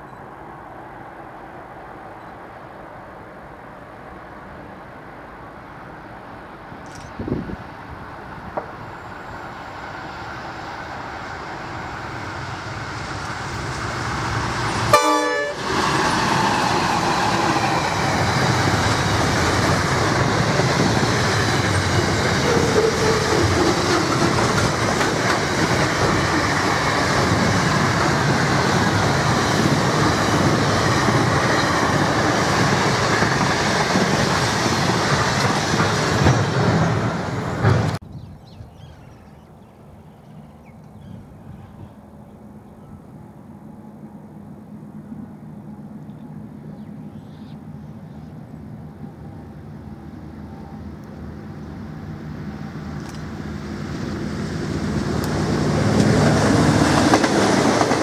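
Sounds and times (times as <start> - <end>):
diesel locomotive: 0.0 - 38.1, 38.8 - 58.0
freight wagons rumbling on rails: 12.8 - 38.0, 53.0 - 58.0
train horn toot: 14.9 - 15.7.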